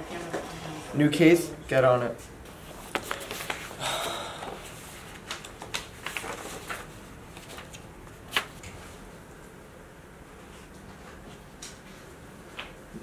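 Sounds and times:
paper pages rustling: 0:02.5 - 0:03.8, 0:04.5 - 0:08.6
paper snap: 0:07.5 - 0:08.7.

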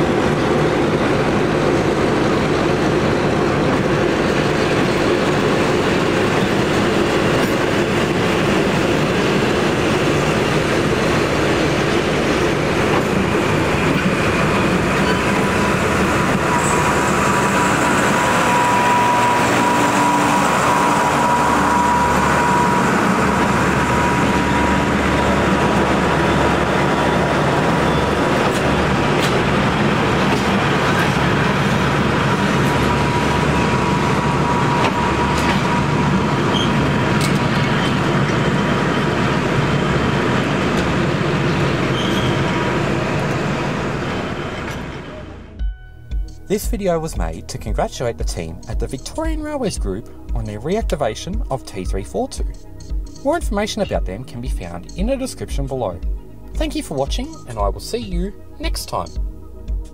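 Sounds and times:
train wheels rumbling on rails: 0:00.0 - 0:49.9
thin steady whine: 0:15.6 - 0:28.3
deep steady hum: 0:45.4 - 0:59.9.

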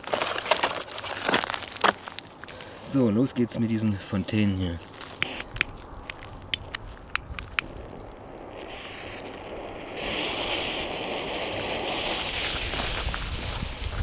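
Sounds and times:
jet lighter clicking: 0:05.2 - 0:07.7
firework fountain hissing: 0:07.3 - 0:14.0.

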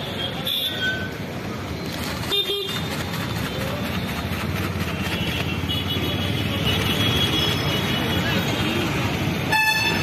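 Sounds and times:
street traffic: 0:00.0 - 0:10.0
vehicle horn tooting: 0:09.5 - 0:10.0.

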